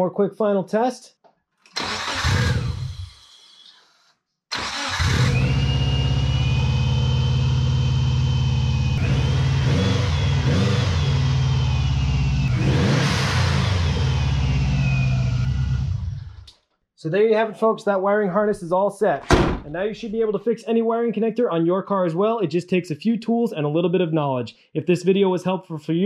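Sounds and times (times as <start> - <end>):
starter whir: 1.7 - 7.0.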